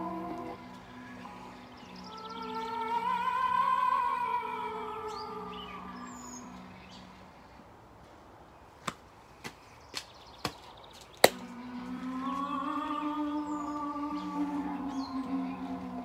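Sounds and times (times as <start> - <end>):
eerie layered held tones: 0.0 - 7.7, 11.3 - 16.0.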